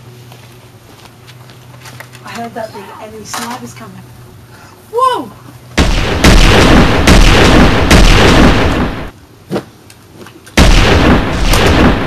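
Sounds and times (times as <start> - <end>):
gunshots with rumbling tail: 5.8 - 9.1, 10.6 - 12.0.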